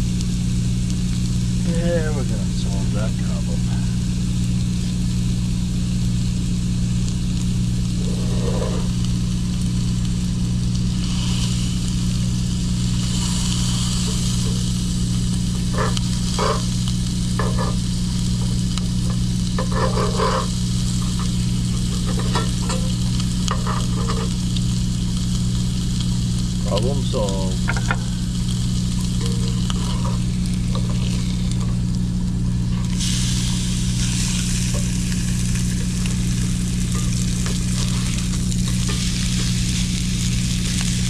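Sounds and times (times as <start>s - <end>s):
bacon sizzling: 0.0s - 41.0s
low hum: 0.0s - 41.0s
tongs and spatula scraping pan: 8.0s - 9.0s, 15.6s - 24.4s, 28.9s - 31.8s, 32.7s - 39.8s.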